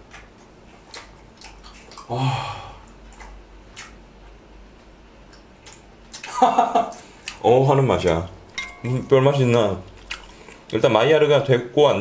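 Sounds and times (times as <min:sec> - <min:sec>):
person chewing crisp food: 0:00.0 - 0:02.1, 0:02.8 - 0:10.8.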